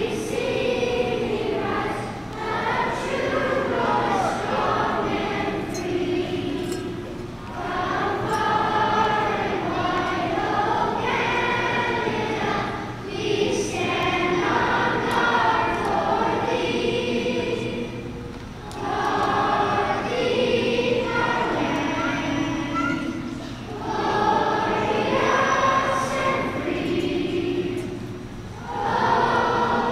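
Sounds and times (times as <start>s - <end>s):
large choir singing an anthem: 0.0s - 29.9s.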